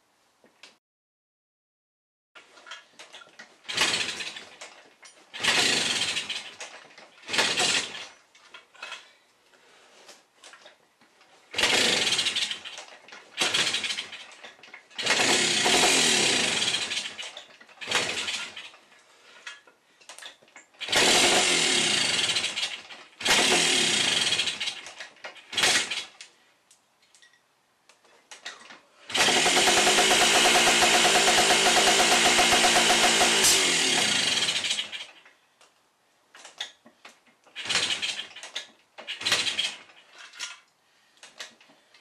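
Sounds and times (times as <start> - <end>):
dirtbike engine starting: 3.6 - 8.2, 11.5 - 19.6, 20.8 - 26.2, 29.1 - 35.2, 37.5 - 40.2.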